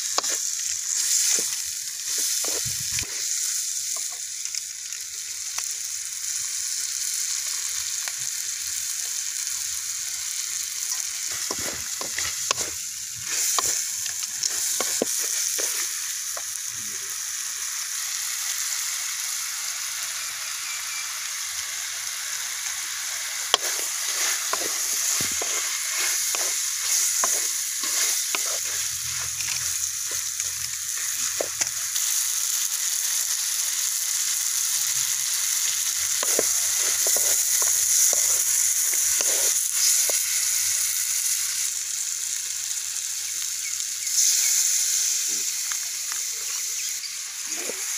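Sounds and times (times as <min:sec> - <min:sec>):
meat sizzling in a pan: 0:00.0 - 0:47.9
wooden spatula scraping and clacking: 0:00.1 - 0:03.3, 0:10.9 - 0:16.5, 0:23.5 - 0:31.8, 0:36.2 - 0:40.3.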